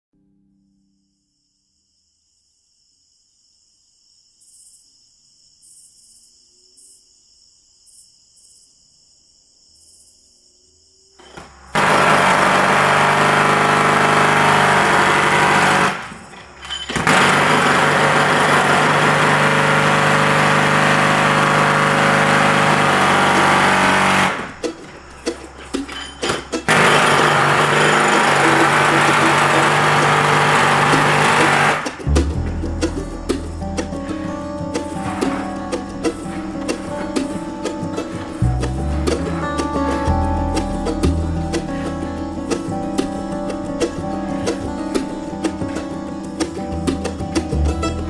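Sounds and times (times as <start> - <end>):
crickets chirping: 0.8 - 11.7, 16.0 - 17.0, 22.7 - 28.2, 31.8 - 47.8
rough grinding noise: 11.3 - 37.2
small gasoline engine running: 11.7 - 24.7, 26.6 - 33.7.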